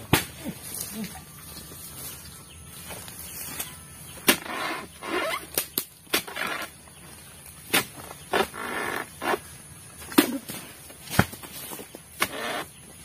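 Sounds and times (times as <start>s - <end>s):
chisel chopping palm fronds: 0.0s - 0.4s, 4.2s - 6.7s, 7.6s - 9.4s, 10.1s - 12.7s
fronds rasping and rustling: 0.4s - 13.0s.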